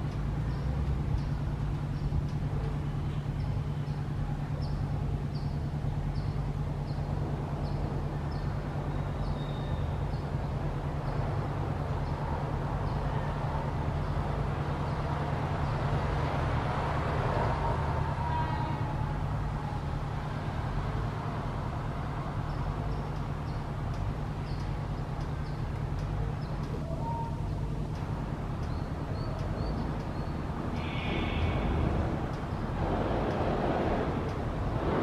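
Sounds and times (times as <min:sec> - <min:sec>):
electric train rumbling: 0:13.4 - 0:35.0.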